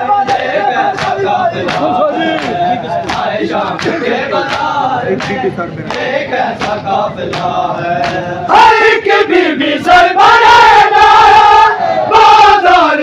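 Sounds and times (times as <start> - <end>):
men chanting in unison: 0.0 - 13.0
hands slapping bare chests: 0.2 - 8.3.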